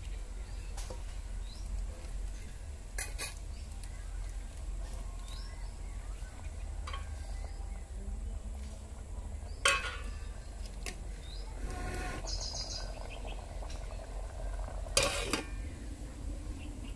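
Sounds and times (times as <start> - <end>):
birds chirping: 9.3 - 14.7
metal clanks on cooking pot: 9.6 - 10.2.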